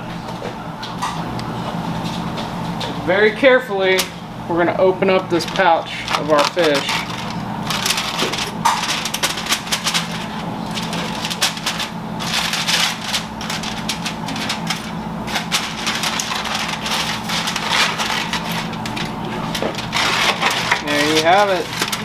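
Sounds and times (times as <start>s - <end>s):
aluminium foil crinkling: 5.1s - 22.0s.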